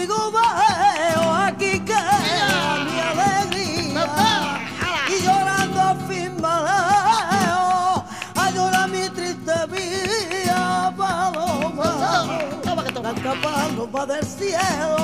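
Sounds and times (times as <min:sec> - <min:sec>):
flamenco guitar: 0:00.0 - 0:15.0
rhythmic handclaps: 0:00.0 - 0:15.0
woman singing: 0:00.0 - 0:15.0.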